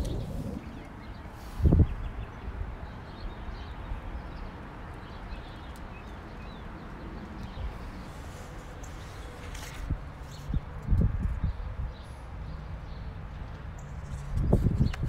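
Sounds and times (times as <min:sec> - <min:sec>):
low outdoor rumble: 0:00.0 - 0:02.8.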